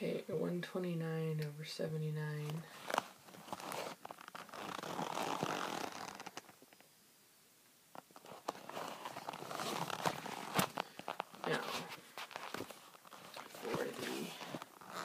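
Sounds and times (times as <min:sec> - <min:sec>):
rustling and scraping handling: 0:02.4 - 0:06.6, 0:08.0 - 0:15.0.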